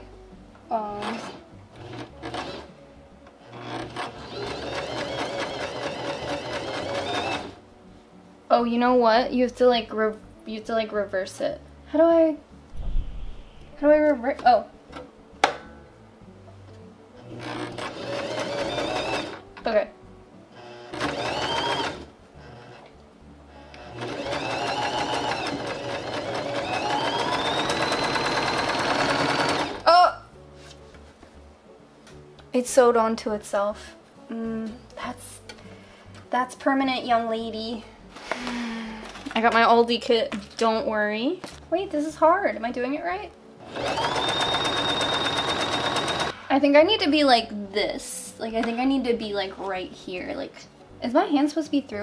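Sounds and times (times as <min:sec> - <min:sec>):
sewing machine stitching: 0:01.0 - 0:02.7, 0:03.5 - 0:07.6, 0:17.4 - 0:19.4, 0:20.6 - 0:22.8, 0:23.8 - 0:29.8, 0:43.6 - 0:46.3.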